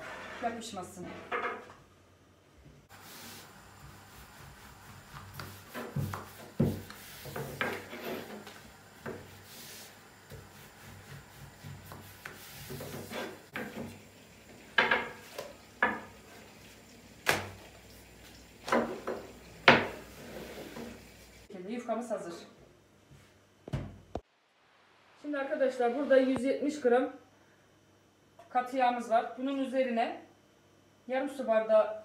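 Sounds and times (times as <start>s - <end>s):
rolling pin rolling dough: 3.0s - 14.0s.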